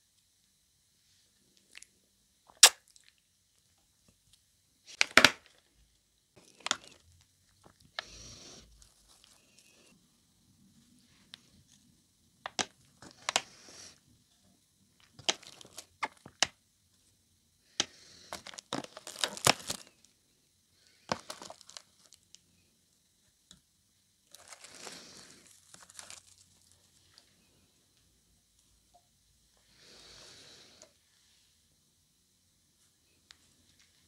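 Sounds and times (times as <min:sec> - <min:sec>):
plastic container crinkling and clicking: 0:15.1 - 0:16.6.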